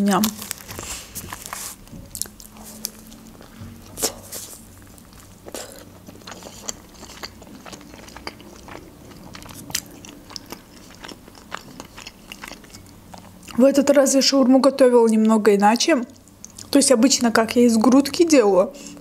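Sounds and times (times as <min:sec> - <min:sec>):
biting and chewing food: 0:00.0 - 0:13.9
wet mouth clicks: 0:05.5 - 0:08.4.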